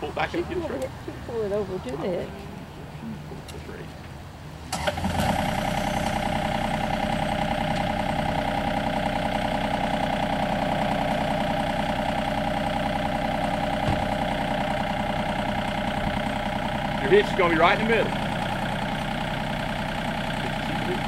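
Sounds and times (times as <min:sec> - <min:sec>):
tractor engine running: 0:04.2 - 0:21.0.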